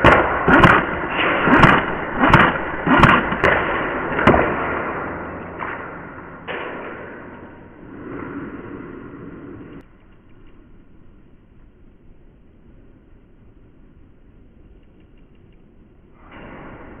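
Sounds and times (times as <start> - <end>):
sharp knocks and thuds: 0.0 - 7.4.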